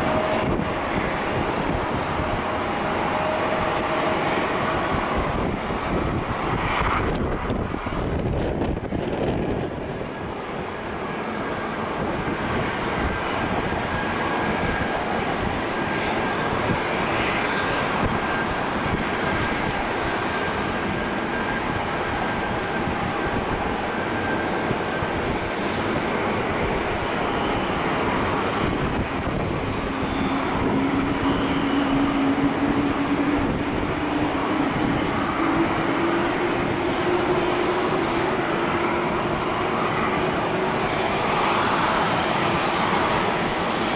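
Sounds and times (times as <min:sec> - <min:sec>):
jet engines rushing: 0:00.0 - 0:43.9
low whine rising in pitch: 0:24.1 - 0:43.9.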